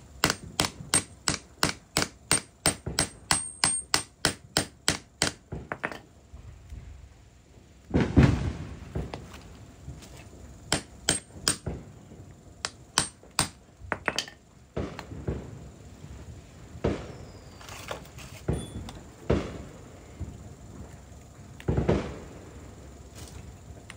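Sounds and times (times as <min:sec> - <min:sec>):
hammer strikes: 0:00.2 - 0:06.0.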